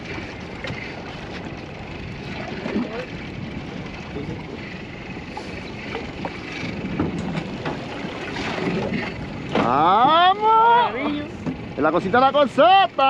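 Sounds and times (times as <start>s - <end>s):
wind noise on microphone: 1.4s - 9.6s.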